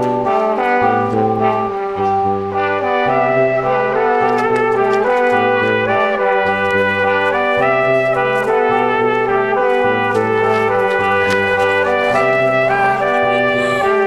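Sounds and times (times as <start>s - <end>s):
brass background music: 0.0s - 14.0s.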